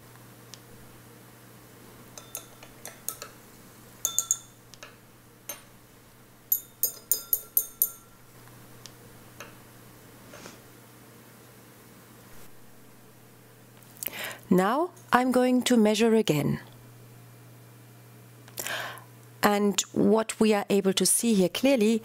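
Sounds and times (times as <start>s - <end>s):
glass beakers clinking: 2.2s - 3.4s, 4.0s - 4.6s, 6.5s - 8.2s.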